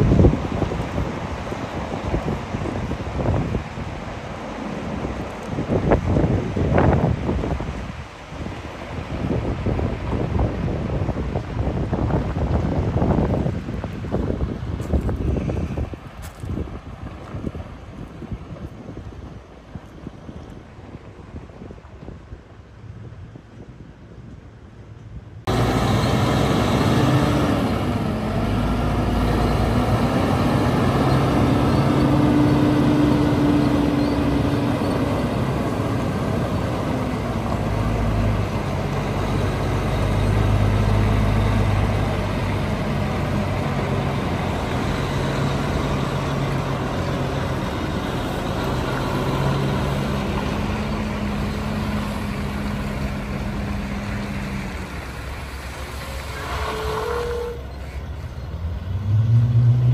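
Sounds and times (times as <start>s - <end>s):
truck diesel engine shifting gears: 25.5s - 59.9s.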